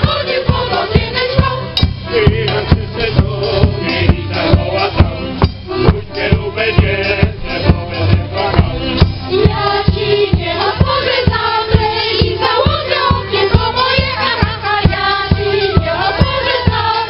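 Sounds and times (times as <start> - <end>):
bass drum beat: 0.0 - 17.0
folk band playing: 0.0 - 17.0
women's choir singing: 0.0 - 17.0.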